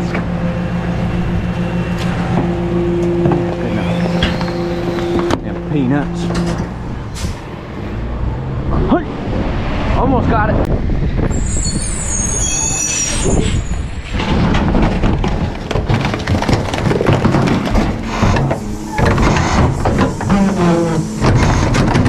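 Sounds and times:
clanking and rattling: 0.0s - 7.4s, 13.3s - 22.0s
garbage truck running: 0.0s - 8.7s, 11.4s - 22.0s
high squeal or hiss: 3.7s - 5.2s, 11.3s - 13.8s.

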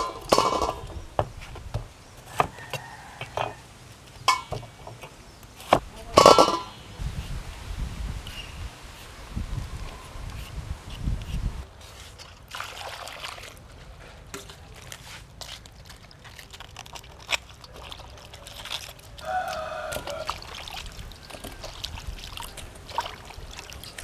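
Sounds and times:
water splashing in metal bowl: 12.4s - 13.7s, 16.1s - 24.0s.

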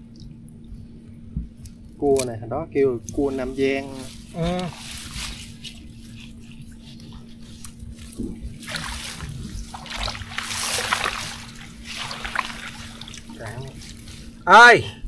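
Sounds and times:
water splashing and trickling: 8.1s - 14.4s.

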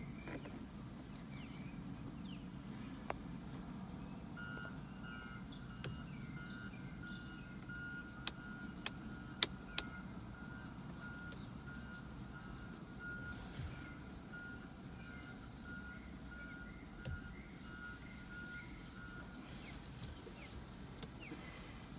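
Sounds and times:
traffic rumble: 0.0s - 21.9s
reversing alarm beeping: 4.4s - 19.8s
sharp clicks: 8.2s - 10.0s.

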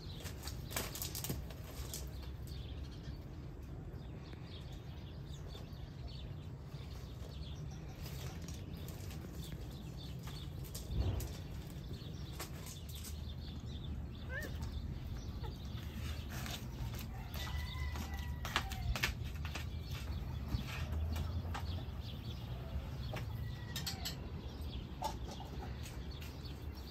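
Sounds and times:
footsteps crunching on gravel: 14.4s - 21.8s.

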